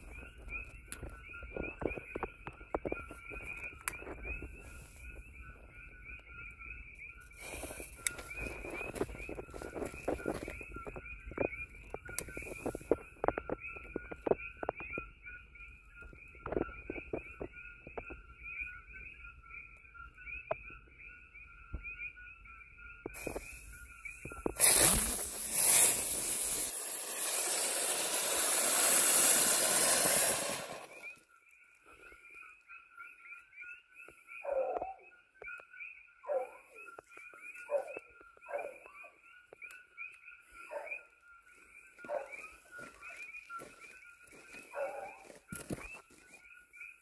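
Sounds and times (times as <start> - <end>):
insects chirping in trill: 0.0 - 31.3
loud crackling hiss: 7.4 - 9.0, 23.2 - 31.0.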